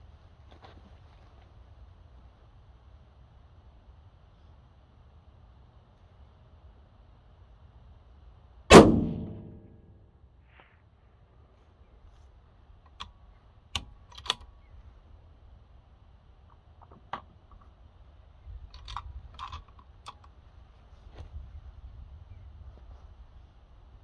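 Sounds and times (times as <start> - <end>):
low rumble: 8.7 - 10.2
sharp clicks of handled gear: 12.8 - 14.7, 18.6 - 20.4.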